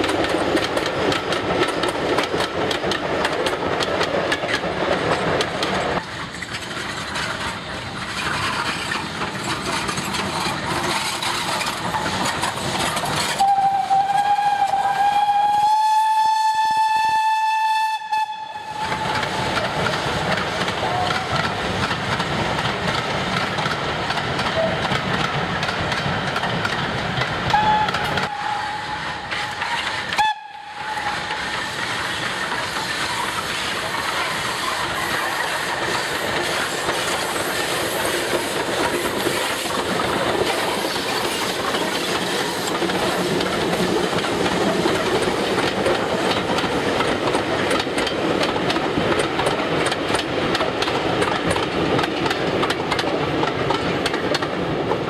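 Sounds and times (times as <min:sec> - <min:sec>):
steam train passing: 0:00.0 - 0:55.0
wheels clicking over rail joints: 0:00.0 - 0:55.0
steam whistle: 0:13.4 - 0:19.2, 0:27.5 - 0:31.4.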